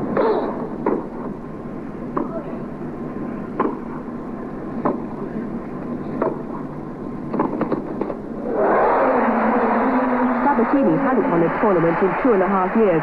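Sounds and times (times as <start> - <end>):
crowd applauding: 8.5 - 13.0.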